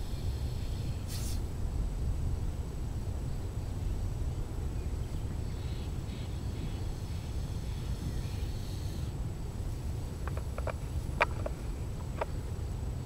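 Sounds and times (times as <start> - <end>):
wind buffeting microphone: 0.0 - 13.0
brief high hiss: 0.1 - 1.5.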